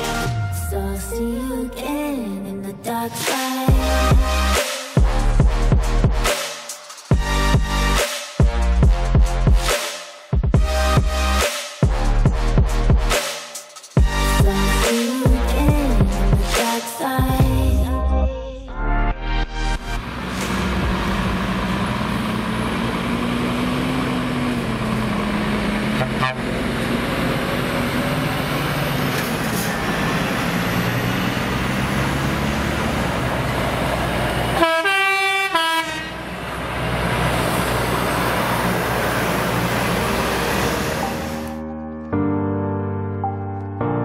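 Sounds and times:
truck diesel engines running: 0.0s - 6.3s, 7.2s - 9.5s, 14.0s - 16.6s, 19.8s - 41.6s
truck horn blast: 3.8s - 6.3s, 25.8s - 26.7s, 34.4s - 36.4s.

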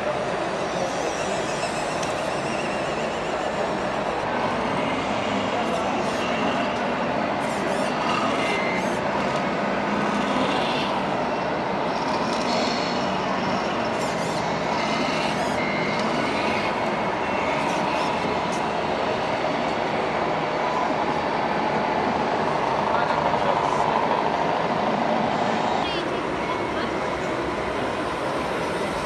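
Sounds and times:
hubbub of busy hall: 0.0s - 29.0s
short electronic beeps: 15.0s - 16.6s.

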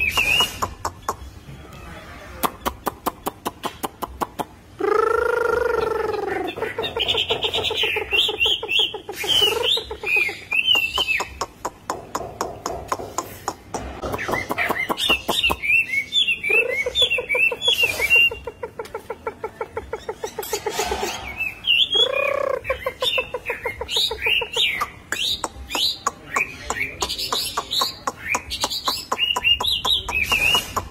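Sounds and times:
bird singing warbled whistles: 0.0s - 0.7s, 8.2s - 11.3s, 21.2s - 22.7s.

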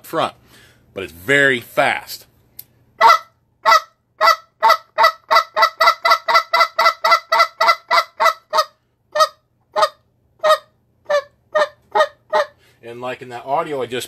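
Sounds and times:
goose call spit clucks: 3.0s - 12.6s.

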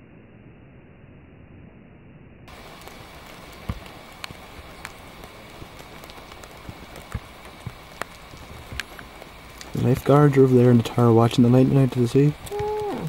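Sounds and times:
raindrops tapping close by: 2.5s - 13.0s
steady rain falling: 2.5s - 13.0s.

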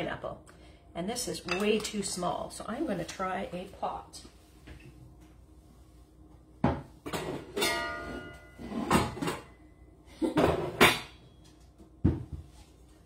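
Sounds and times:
metal pots clanking together: 7.1s - 9.5s.

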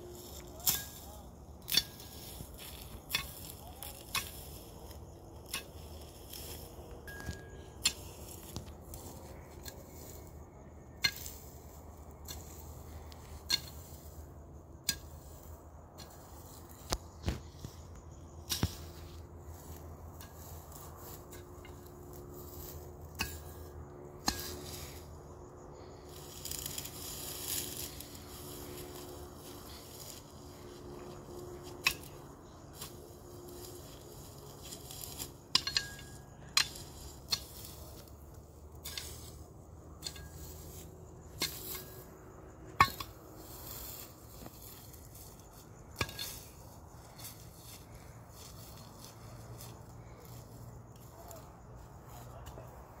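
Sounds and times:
hoe chopping stony ground: 18.4s - 20.7s, 42.7s - 47.9s.

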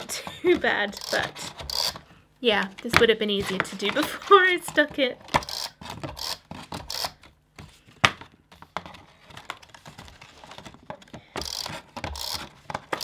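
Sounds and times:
tape runner rasping on card: 0.9s - 2.0s, 5.3s - 7.3s, 11.4s - 13.0s.

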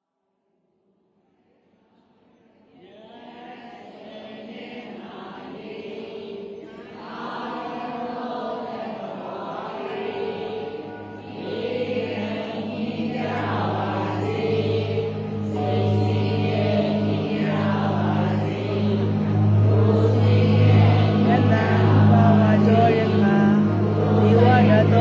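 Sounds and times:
chant-like voices: 2.6s - 25.0s
sustained tones: 7.8s - 25.0s.

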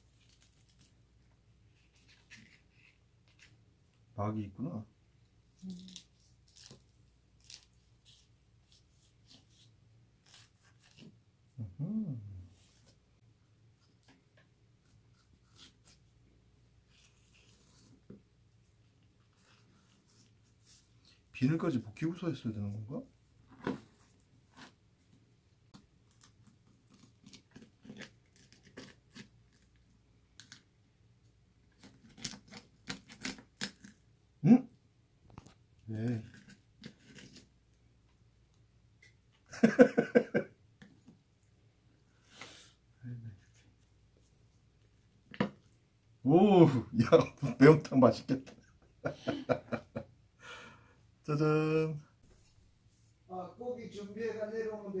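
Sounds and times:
knife scraping fish bones: 31.8s - 34.0s.

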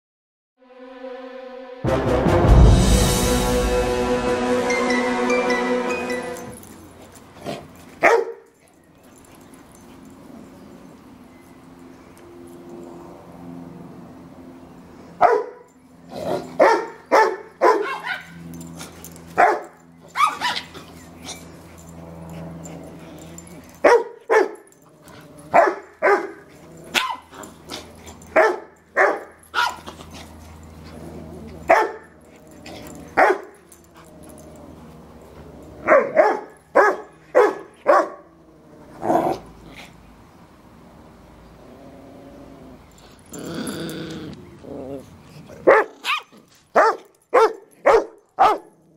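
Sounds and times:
dogs barking: 8.0s - 8.5s, 15.2s - 15.7s, 16.4s - 18.5s, 19.3s - 21.4s, 22.8s - 24.8s, 25.5s - 29.9s, 31.6s - 32.2s, 32.8s - 33.6s, 35.8s - 38.2s, 45.6s - 48.8s
dog growling: 30.8s - 31.7s, 41.6s - 46.0s.

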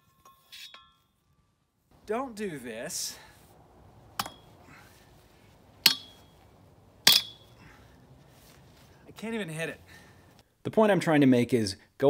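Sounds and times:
sledgehammer clanking on steel post: 4.2s - 4.5s, 5.8s - 6.3s, 7.0s - 7.5s.

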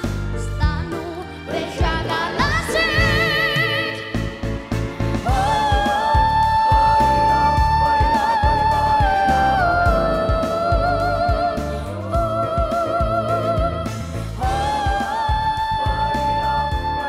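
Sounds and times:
pop backing track: 0.0s - 17.0s
boy singing with vibrato: 5.3s - 17.0s.

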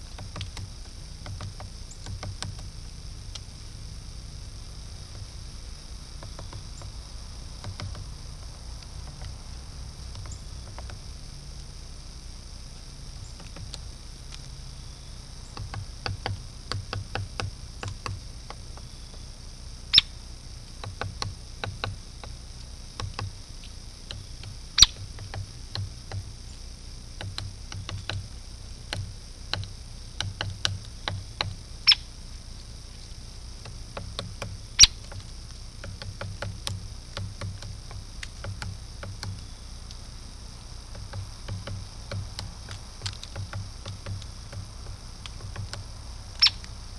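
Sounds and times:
woodpecker pecking bark: 0.0s - 3.5s, 4.8s - 11.2s, 13.1s - 46.9s.

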